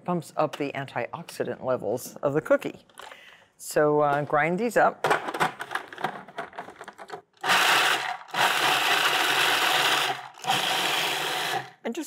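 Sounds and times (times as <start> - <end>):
food processor grinding nuts: 7.4 - 11.8.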